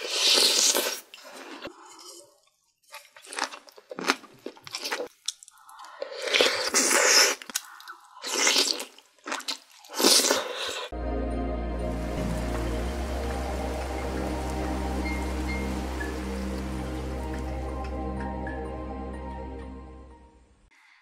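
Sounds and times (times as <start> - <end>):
wet chewing and crunching: 0.0 - 10.9
slurping food: 6.0 - 11.0.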